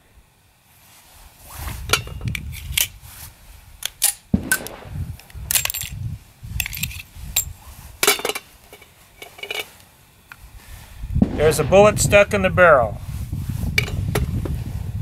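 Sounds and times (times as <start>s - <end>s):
pistol metallic clicks and knocks: 3.8s - 6.0s.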